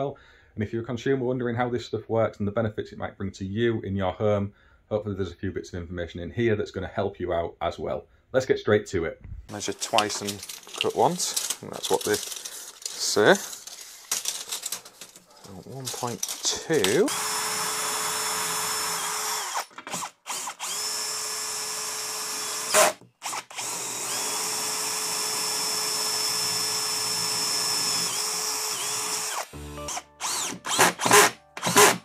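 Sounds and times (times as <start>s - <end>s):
cordless drill running: 16.9s - 32.0s.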